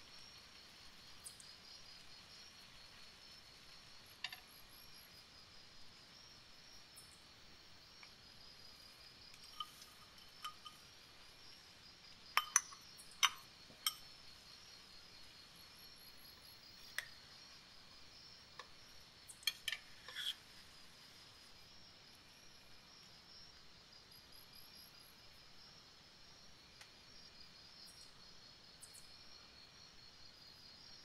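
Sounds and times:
spoon and peas clinking on pan: 9.3s - 10.8s, 12.4s - 14.1s, 19.4s - 20.4s.

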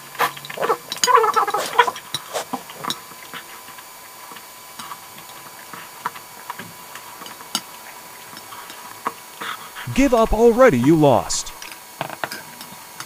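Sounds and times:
short vocal sound: 9.8s - 11.6s.

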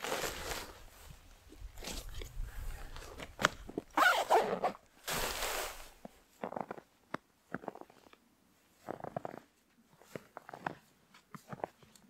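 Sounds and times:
backpack rustling scrapes: 0.0s - 1.1s, 4.0s - 6.1s
footsteps crunching in snow: 0.0s - 6.7s.

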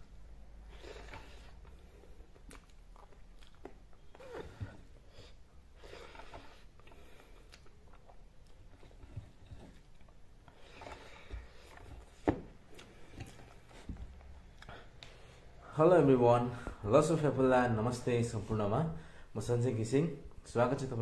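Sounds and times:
soft chewing: 0.0s - 15.6s.

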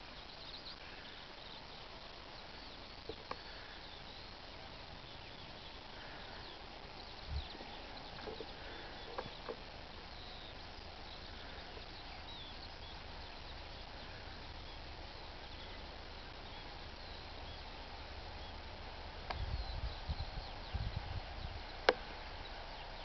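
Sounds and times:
low hiss and rumble: 0.0s - 23.0s
small birds chirping: 0.0s - 23.0s.

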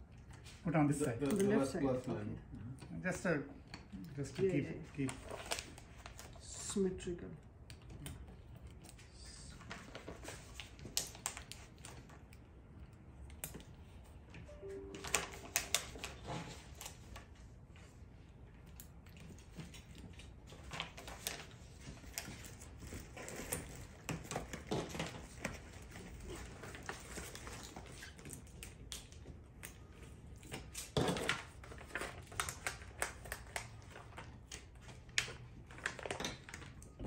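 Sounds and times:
paper sticker sheets rustling: 14.7s - 18.0s.

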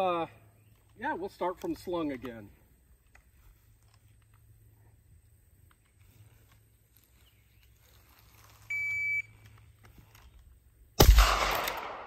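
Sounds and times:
rifle shot: 11.0s - 12.0s.

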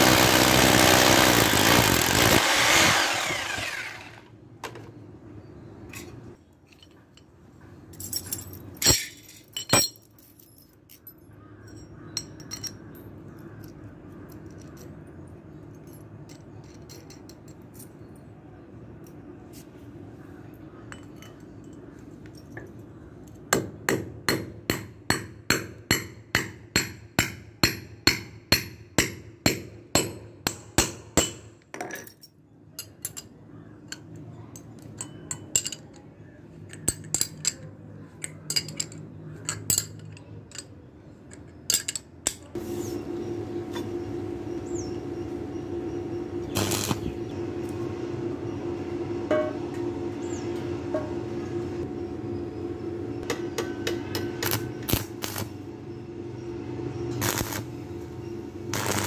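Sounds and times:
steady hum: 42.6s - 59.0s.

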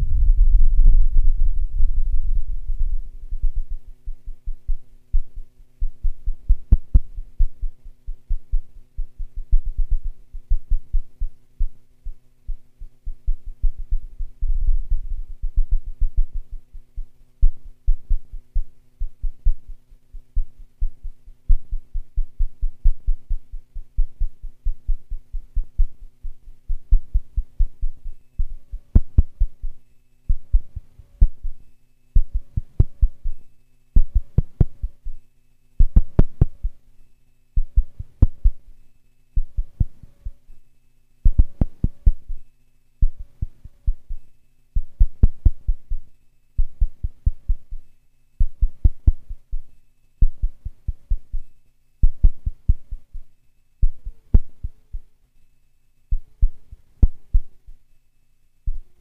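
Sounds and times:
low synthesizer thumps: 0.0s - 7.7s
low synthesizer drone: 0.0s - 11.8s.

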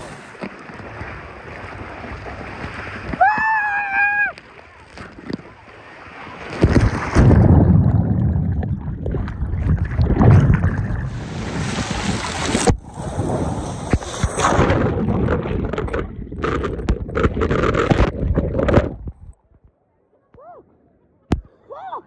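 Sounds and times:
water rushing down a slide: 0.0s - 19.2s.

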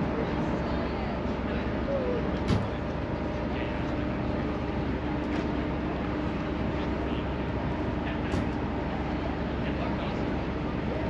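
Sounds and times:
engine droning: 0.0s - 11.0s.

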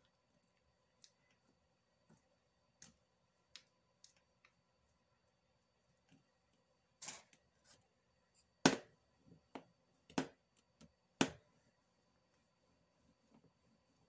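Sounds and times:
clay knocks and taps on mat: 8.6s - 11.5s.

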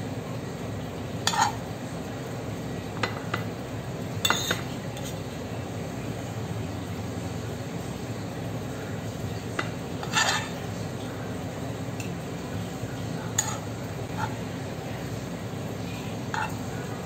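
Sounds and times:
metal spoon scraping a pan: 1.2s - 1.6s, 4.2s - 5.2s, 9.6s - 10.7s, 13.3s - 14.5s, 16.3s - 16.8s.

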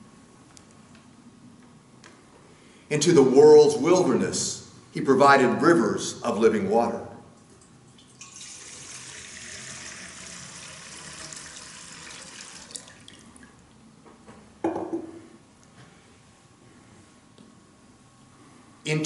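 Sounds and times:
water pouring into metal bowl: 8.0s - 13.5s.

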